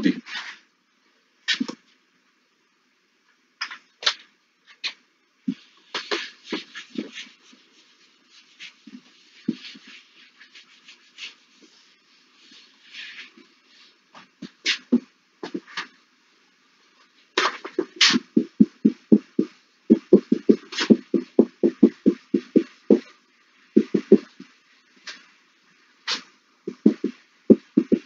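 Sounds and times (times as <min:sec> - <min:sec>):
eraser and marker knocking on board: 0:05.5 - 0:07.4, 0:17.4 - 0:23.1, 0:23.8 - 0:25.2, 0:26.1 - 0:28.0
eraser rubbing on whiteboard: 0:05.6 - 0:14.0, 0:17.4 - 0:23.2, 0:23.8 - 0:25.2, 0:26.0 - 0:28.0.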